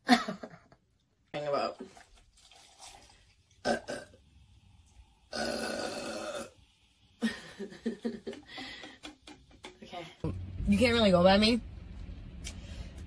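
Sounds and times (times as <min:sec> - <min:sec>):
woman burping: 0:03.6 - 0:04.2, 0:05.3 - 0:06.5.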